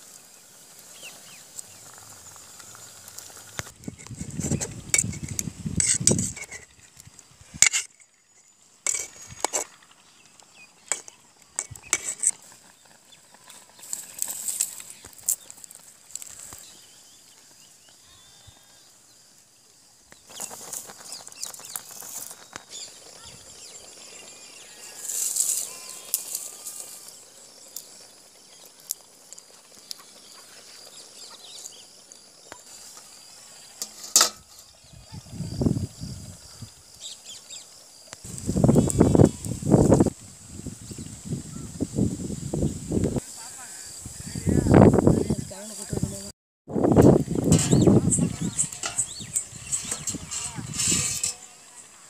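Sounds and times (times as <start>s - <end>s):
birds chirping: 20.1s - 29.2s, 29.8s - 33.8s, 47.5s - 52.0s
steel pots clinking: 33.8s - 34.6s, 48.5s - 51.5s.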